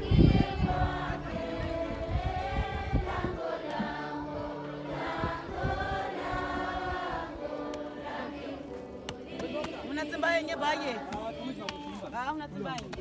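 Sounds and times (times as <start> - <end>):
choir singing held notes: 0.0 - 12.2.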